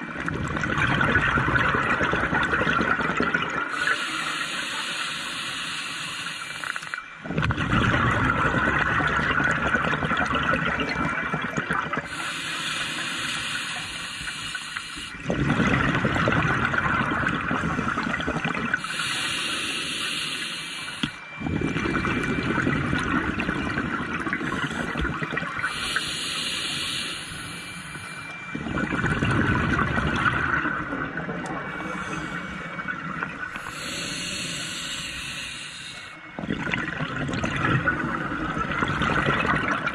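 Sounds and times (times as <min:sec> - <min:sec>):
exhaled bubbles rushing: 0:00.0 - 0:03.8, 0:07.2 - 0:12.2, 0:15.2 - 0:18.9, 0:21.3 - 0:25.8, 0:28.5 - 0:33.7, 0:36.3 - 0:39.9
regulator inhalation hiss: 0:03.7 - 0:07.0, 0:12.1 - 0:15.2, 0:18.8 - 0:21.2, 0:25.6 - 0:28.3, 0:33.5 - 0:36.3.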